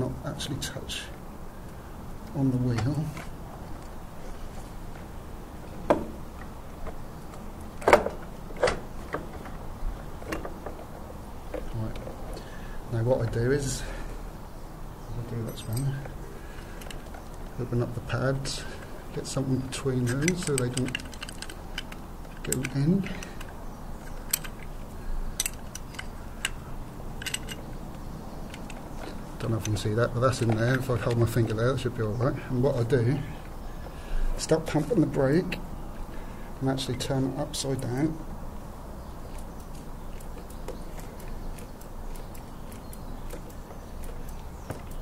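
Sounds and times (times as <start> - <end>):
light metallic clicks: 18.8 - 31.6, 39.2 - 45.0.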